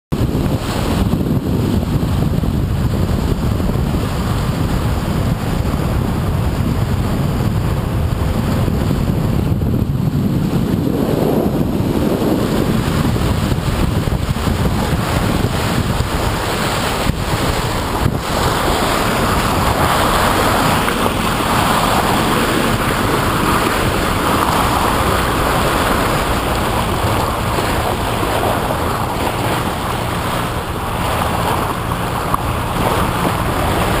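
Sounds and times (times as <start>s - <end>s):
water rushing along boat hull: 0.1s - 34.0s
wind buffeting microphone: 0.1s - 34.0s
boat engine drone: 0.2s - 34.0s.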